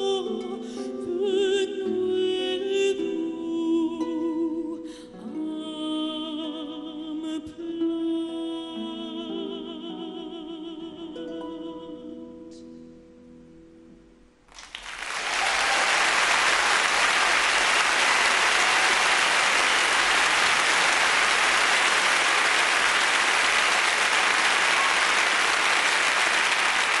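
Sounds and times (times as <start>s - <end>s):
audience applause: 14.5s - 27.0s.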